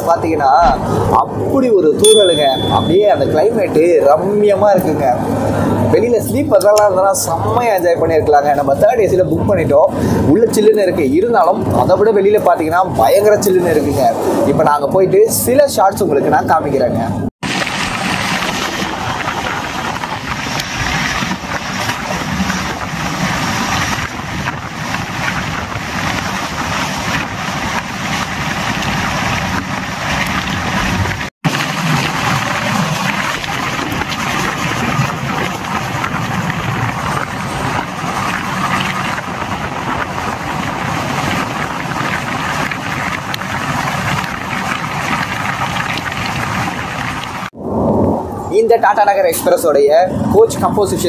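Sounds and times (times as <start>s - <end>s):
rushing air: 0.6s - 2.2s.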